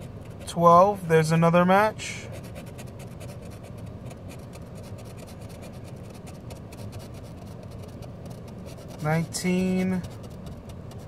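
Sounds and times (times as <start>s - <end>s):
scratch card being scraped: 2.2s - 11.0s.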